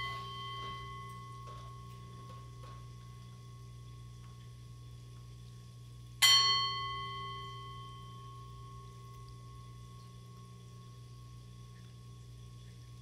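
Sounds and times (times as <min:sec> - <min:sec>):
singing bowl ringing: 0:00.0 - 0:02.5, 0:06.2 - 0:09.7.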